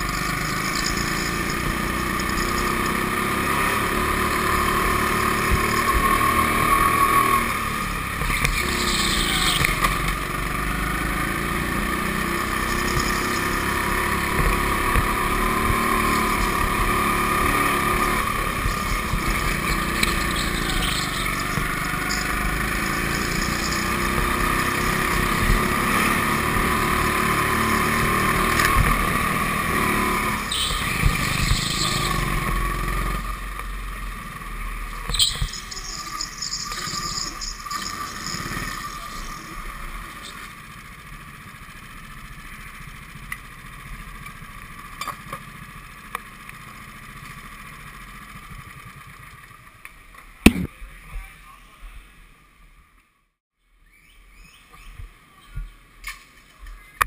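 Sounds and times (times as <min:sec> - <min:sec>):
go-kart motor whining: 0:00.0 - 0:50.7
short high-pitched squeaks: 0:19.6 - 0:24.2, 0:35.0 - 0:40.4.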